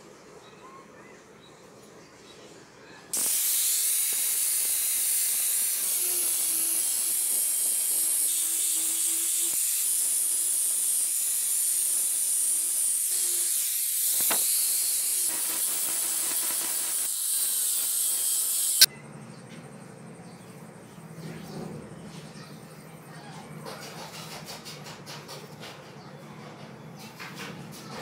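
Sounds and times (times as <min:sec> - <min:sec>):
angle grinder grinding metal: 0:03.1 - 0:18.9.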